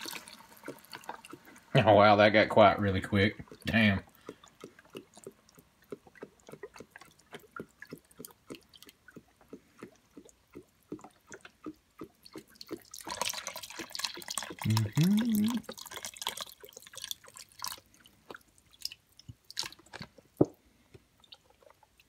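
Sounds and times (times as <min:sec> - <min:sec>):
broth pouring into pot: 0:00.0 - 0:05.2, 0:12.2 - 0:19.8
liquid dripping and splashing: 0:00.0 - 0:20.6.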